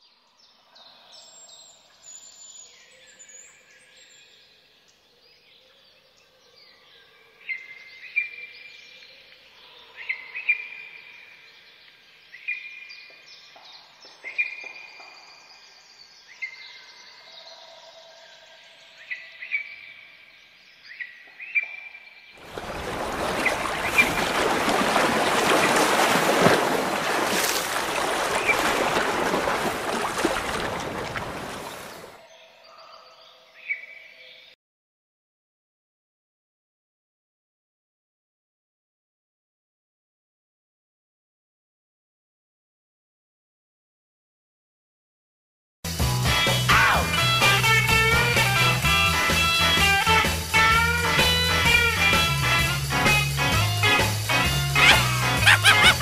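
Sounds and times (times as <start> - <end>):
waterfall rushing: 22.4 - 32.2, 54.8 - 56.0
birds chirping: 22.4 - 34.6, 54.7 - 56.0.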